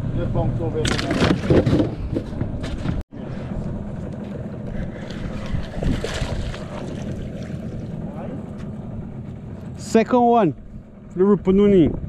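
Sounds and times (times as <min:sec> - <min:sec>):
outboard motor running: 0:00.2 - 0:12.0
wind buffeting microphone: 0:01.4 - 0:09.6.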